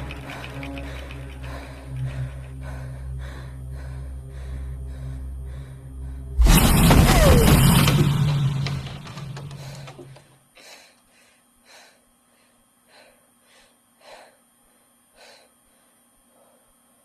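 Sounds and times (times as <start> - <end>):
low rumble: 0.0 - 10.2
woman gasping breaths: 9.4 - 16.8.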